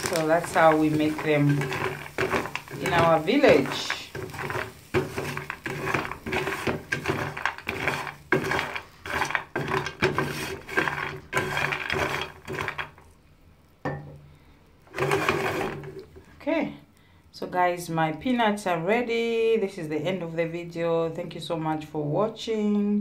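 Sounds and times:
peanuts rattling in metal pan: 0:00.0 - 0:13.2, 0:14.9 - 0:16.2.

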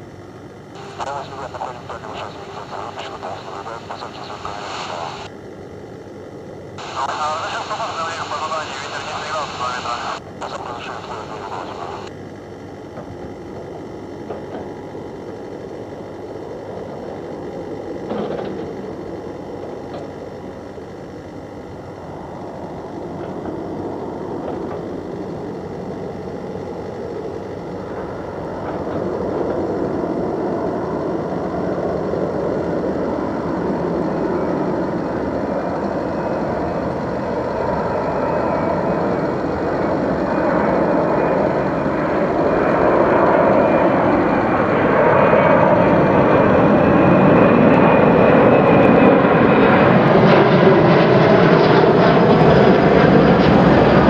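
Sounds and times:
jet aircraft rumble: 0:00.0 - 0:54.0.

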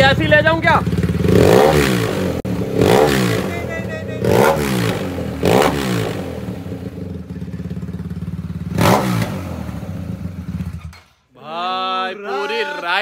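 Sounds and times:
motorcycle engine idling: 0:00.0 - 0:02.8, 0:03.5 - 0:10.9
motorcycle engine revving: 0:00.0 - 0:11.0.

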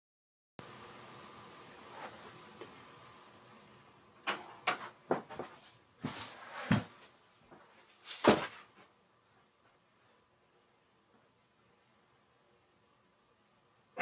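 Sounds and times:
knocks and thumps in a room: 0:04.3 - 0:09.0.

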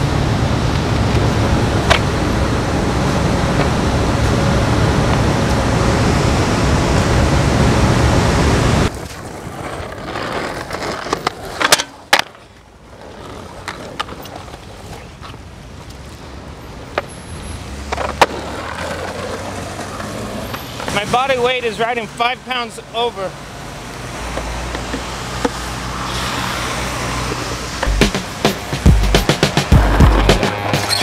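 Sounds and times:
quiet street sound: 0:00.0 - 0:31.0
skateboard wheels rolling on pavement: 0:00.0 - 0:31.0
skateboard clacks: 0:00.7 - 0:02.2, 0:08.9 - 0:15.9, 0:16.8 - 0:17.1, 0:17.9 - 0:21.0, 0:24.3 - 0:25.6.

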